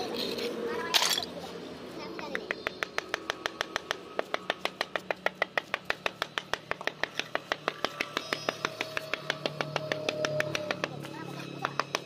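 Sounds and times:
hammer tapping marble: 0:02.2 - 0:12.0.

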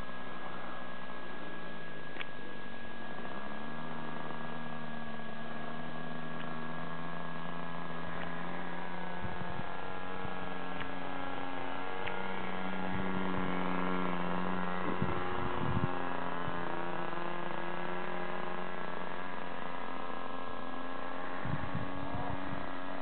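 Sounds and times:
model aircraft engine droning: 0:00.0 - 0:23.0
low microphone rumbles: 0:11.8 - 0:16.6, 0:21.4 - 0:23.0.

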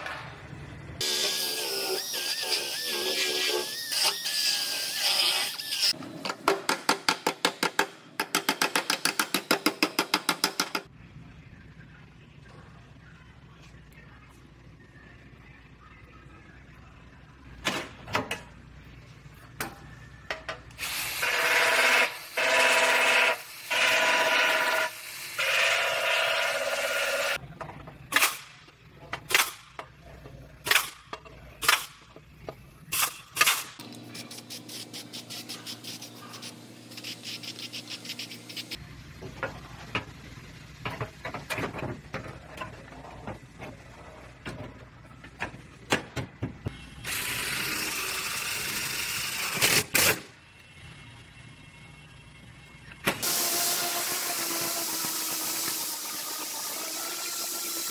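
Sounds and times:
pneumatic tool whirring: 0:20.8 - 0:27.4, 0:47.0 - 0:50.3, 0:53.0 - 0:57.9.

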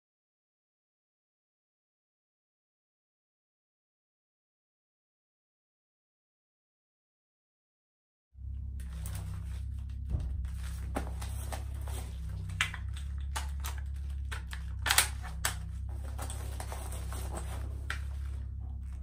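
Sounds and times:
steady low hum: 0:08.4 - 0:19.0
rifle replica mechanical clicks: 0:13.3 - 0:15.6.

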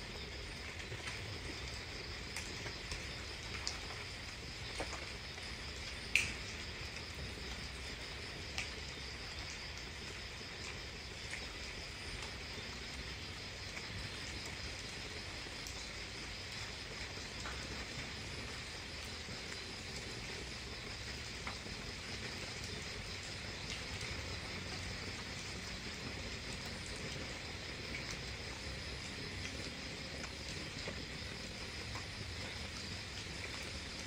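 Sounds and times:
crickets chirping: 0:00.0 - 0:34.0.

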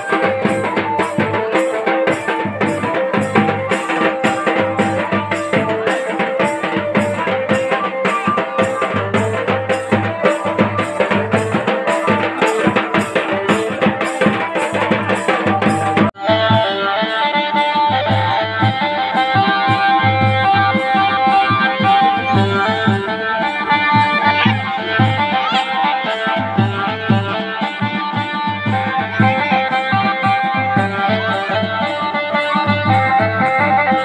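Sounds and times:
band music with drum beat: 0:00.0 - 0:34.0.

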